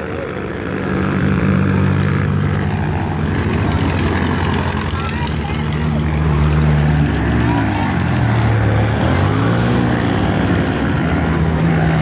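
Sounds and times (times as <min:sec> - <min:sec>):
buggy engines revving: 0:00.0 - 0:12.0.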